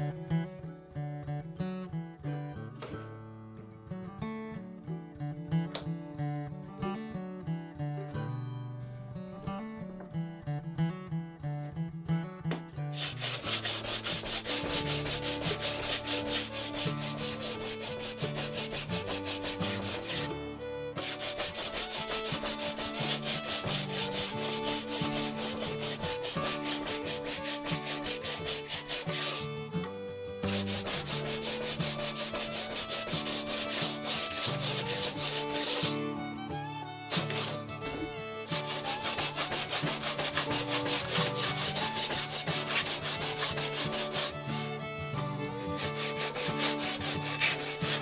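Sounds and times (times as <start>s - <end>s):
sanding block rubbing bamboo: 12.9s - 20.3s, 21.0s - 29.5s, 30.4s - 36.0s, 37.1s - 44.6s, 45.6s - 48.0s.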